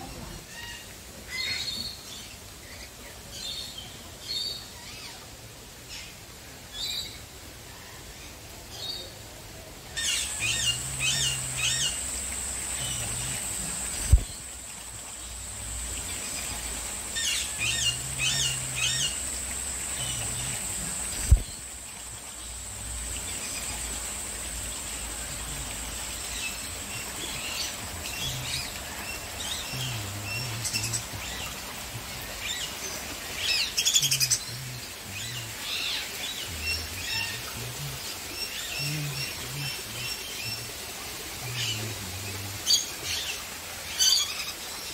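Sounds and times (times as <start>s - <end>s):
birds chirping and calling: 10.0s - 14.5s, 15.3s - 21.7s
steady high whine: 10.0s - 42.6s.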